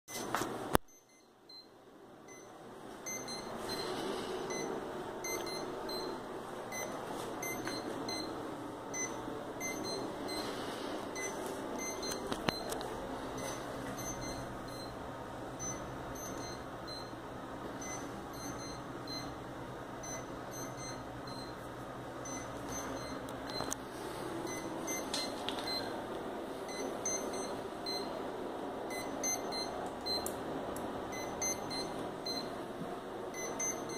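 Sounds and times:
short electronic beeps: 3.1 - 8.3, 8.9 - 10.5, 13.4 - 15.0, 26.7 - 28.1, 28.9 - 30.3, 31.1 - 32.5.

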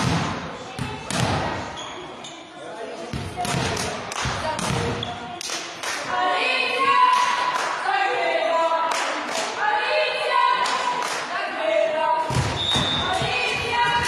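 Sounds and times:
hands clapping: 3.8 - 4.4, 5.4 - 6.1, 7.1 - 7.8, 8.9 - 9.6, 10.6 - 11.3
voices chanting and calling out: 6.0 - 14.0.

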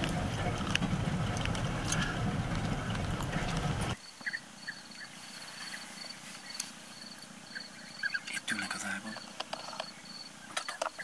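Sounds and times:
car rolling over dirt track: 0.0 - 4.0
bird calls: 1.8 - 11.0.

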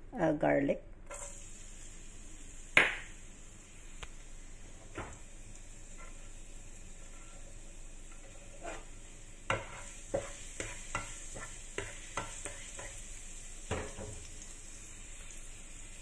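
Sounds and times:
spatula scraping a pan: 1.1 - 1.4, 5.8 - 13.2
garlic sizzling in oil: 1.1 - 16.0.

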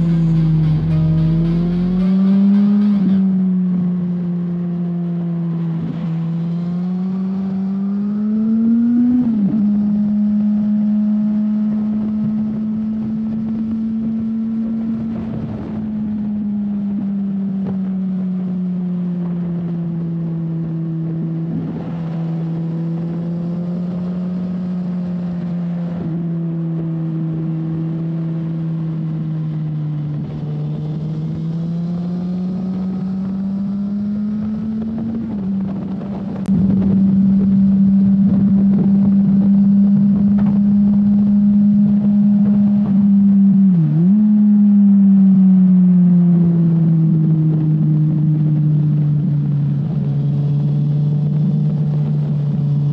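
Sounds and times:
motorcycle engine revving: 0.0 - 52.9.

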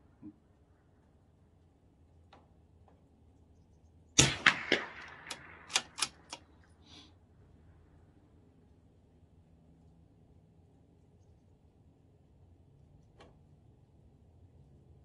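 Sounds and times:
rifle shot with echo: 4.2 - 6.6.

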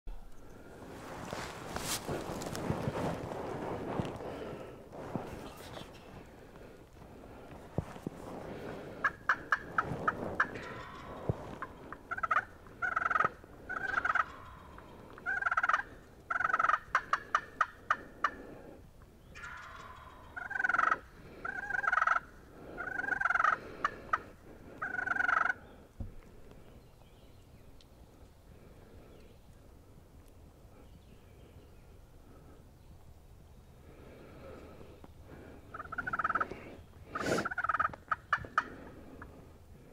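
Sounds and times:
turkey gobbling: 8.6 - 18.5, 19.3 - 25.6, 35.7 - 39.3.

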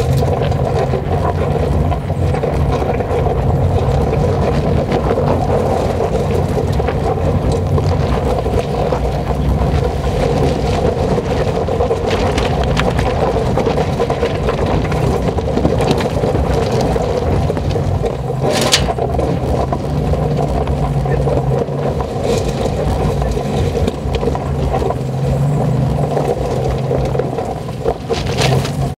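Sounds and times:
car engine running: 0.0 - 29.0
tyres crunching on stones: 14.3 - 28.9
sharp crack: 17.6 - 19.5.

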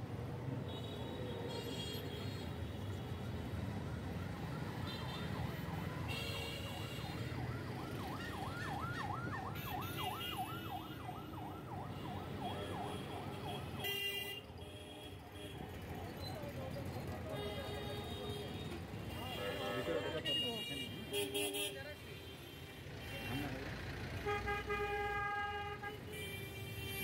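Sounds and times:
street traffic rumble: 0.0 - 27.0
ambulance siren yelping: 3.9 - 13.8.

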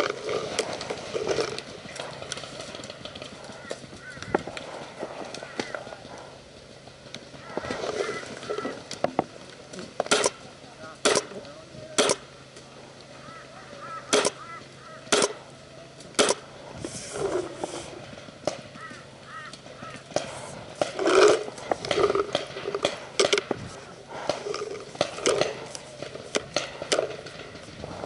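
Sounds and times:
paintball markers firing: 10.0 - 12.3, 14.1 - 14.4, 15.0 - 15.4, 16.2 - 16.5, 18.4 - 27.7.

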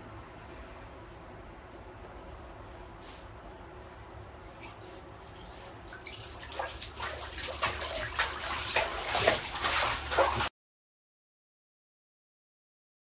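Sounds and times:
faint steady hum: 0.0 - 10.5
water splashing in bathtub: 4.6 - 10.5.

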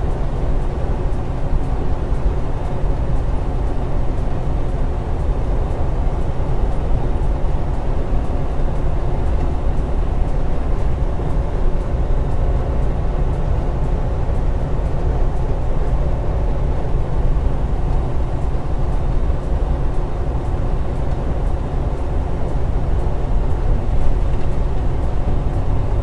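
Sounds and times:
diesel truck engine drone: 0.0 - 26.0.

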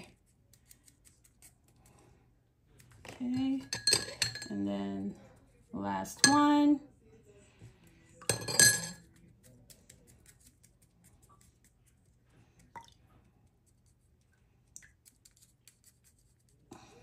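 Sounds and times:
spoon clinking on glass: 3.6 - 4.6, 8.2 - 9.0.

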